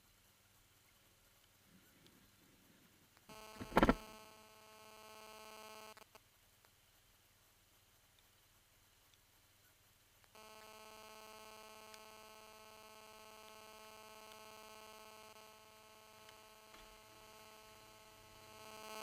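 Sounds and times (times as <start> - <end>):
faint ticks: 0.0 - 4.1, 5.9 - 10.8, 11.8 - 12.2, 13.4 - 14.6, 16.1 - 17.8
electrical buzz with hum: 3.3 - 6.2, 10.4 - 19.0.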